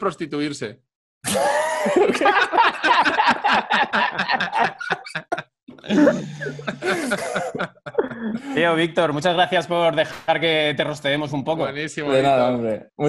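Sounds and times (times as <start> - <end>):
men laughing: 1.3 - 8.7.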